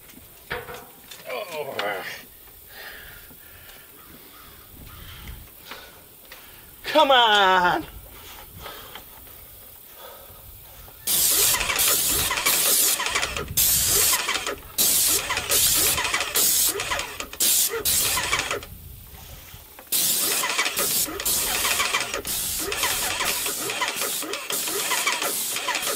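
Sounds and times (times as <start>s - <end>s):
spray gun hissing in bursts: 11.0s - 25.9s
paint sprayer pump running: 11.1s - 18.7s, 19.8s - 25.9s.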